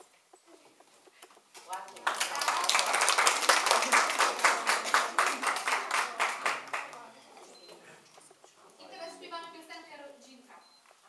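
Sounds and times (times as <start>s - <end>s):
audience applauding: 1.7s - 7.2s.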